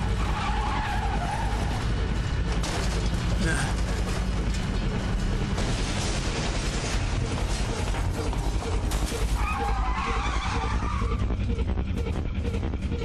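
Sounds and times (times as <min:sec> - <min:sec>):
race car engine: 0:00.0 - 0:03.3
heavy low rumble: 0:03.2 - 0:13.0
tyres screeching: 0:09.2 - 0:11.4.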